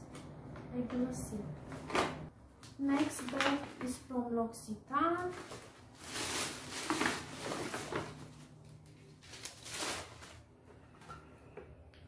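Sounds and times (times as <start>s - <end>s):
paper bag rustling: 2.9s - 4.1s, 5.1s - 10.6s.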